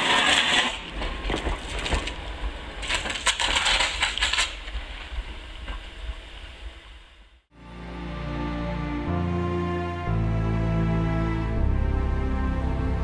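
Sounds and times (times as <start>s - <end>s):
electric arcing crackles: 0.0s - 6.6s.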